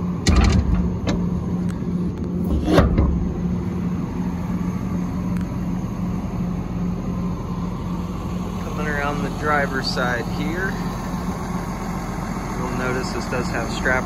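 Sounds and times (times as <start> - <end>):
diesel engine idling: 0.0 - 14.0
brief bumps: 2.4 - 3.4.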